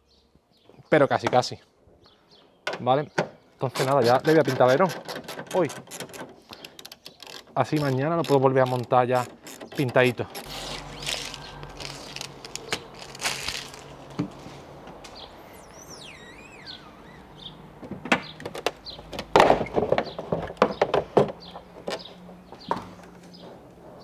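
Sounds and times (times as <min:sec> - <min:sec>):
bird chirping: 0:06.4 - 0:19.2, 0:20.0 - 0:23.5.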